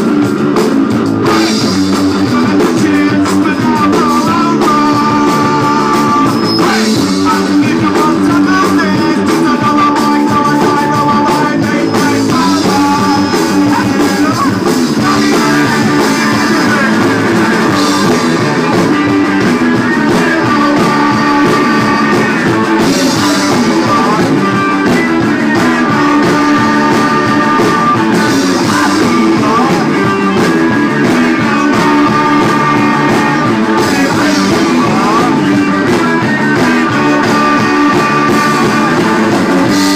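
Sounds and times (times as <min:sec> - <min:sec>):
drum kit: 0:00.0 - 0:39.9
electric guitar: 0:00.0 - 0:39.9
person singing into microphone: 0:01.1 - 0:39.9.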